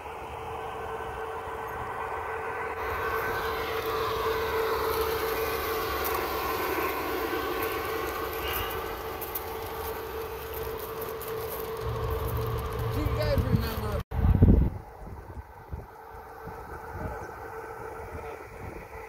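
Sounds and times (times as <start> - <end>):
wheels clicking on track: 0.0 - 14.0
model train hum: 0.0 - 19.0
model train rolling rumble: 0.0 - 19.0.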